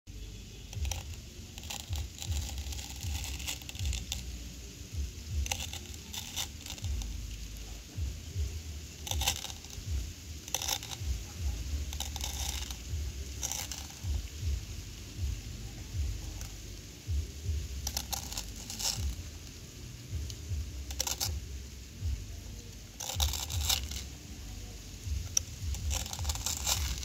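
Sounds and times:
plastic crinkling: 0.7 - 27.0
egg clutches crunching: 25.3 - 27.0.

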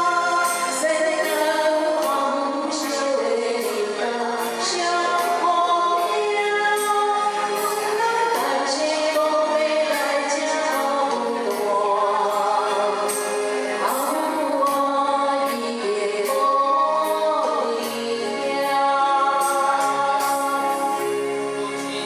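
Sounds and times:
woman singing into a microphone: 0.0 - 22.0
backing music with percussion beat: 11.5 - 15.6, 19.4 - 22.0.

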